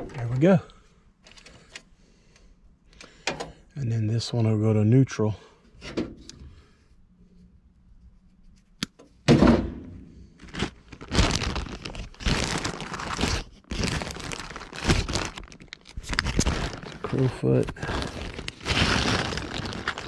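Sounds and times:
plastic bag crinkling and rustling: 10.4s - 20.0s.

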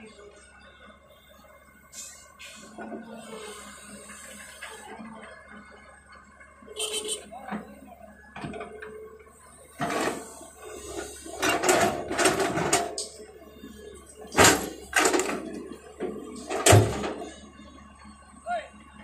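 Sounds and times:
excavator bucket clanking: 9.8s - 13.3s, 14.1s - 17.4s.

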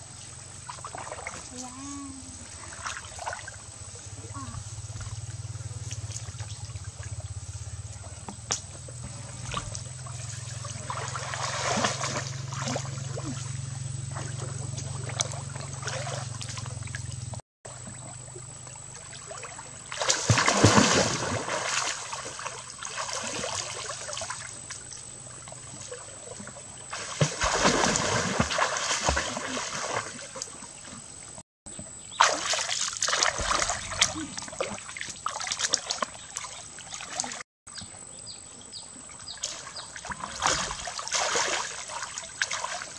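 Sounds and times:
water splashing and sloshing: 0.0s - 38.0s, 39.0s - 42.9s.

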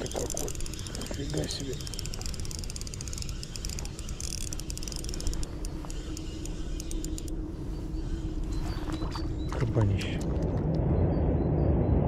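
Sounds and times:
fishing reel clicking: 0.0s - 7.4s
low rumble: 6.3s - 12.0s.

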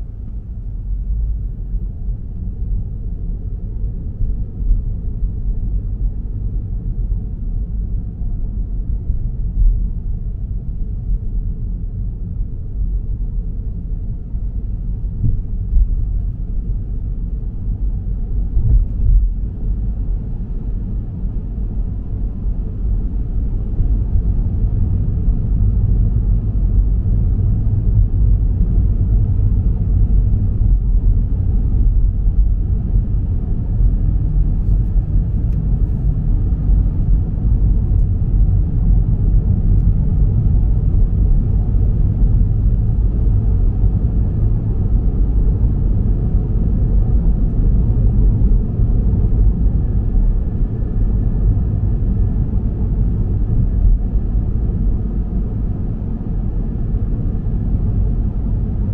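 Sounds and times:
muffled car road and engine rumble: 0.0s - 58.9s.

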